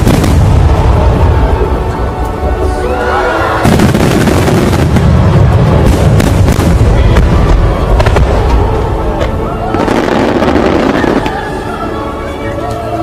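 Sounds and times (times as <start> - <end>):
fireworks booming and crackling: 0.0 - 2.0, 3.6 - 11.7
music: 0.0 - 13.0.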